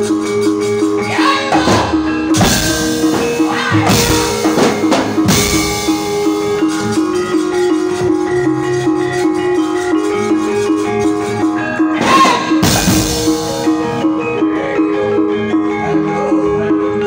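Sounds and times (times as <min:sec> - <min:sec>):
metallophone melody: 0:00.0 - 0:17.0
hand drumming: 0:01.5 - 0:08.2.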